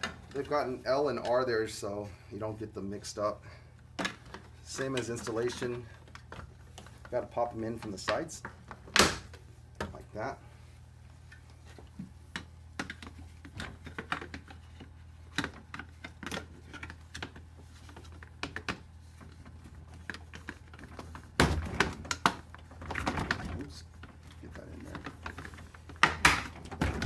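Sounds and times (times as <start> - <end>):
low steady hum: 0.0 - 27.0
plastic knocks and rattles: 12.0 - 27.0.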